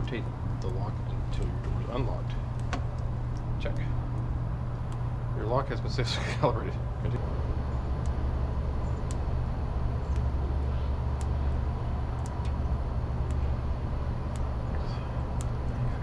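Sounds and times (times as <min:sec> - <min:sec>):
low outdoor rumble: 0:00.0 - 0:16.0
faint high ticks: 0:02.5 - 0:05.1, 0:08.9 - 0:13.6, 0:14.2 - 0:15.9.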